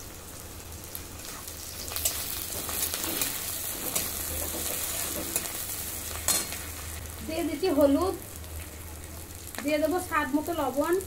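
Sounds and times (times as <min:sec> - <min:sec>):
vegetables sizzling in hot oil: 0:00.0 - 0:11.0.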